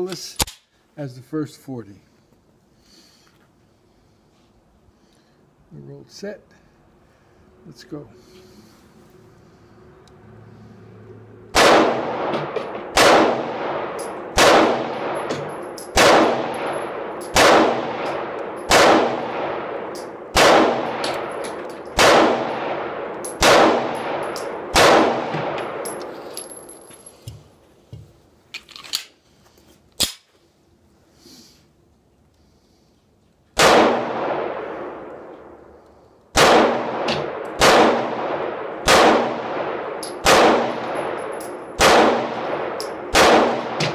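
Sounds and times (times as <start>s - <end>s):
pistol shots echoing: 11.5s - 26.1s, 33.6s - 35.2s, 36.3s - 43.9s
magazine change clacks: 13.9s - 27.4s, 40.0s - 43.9s.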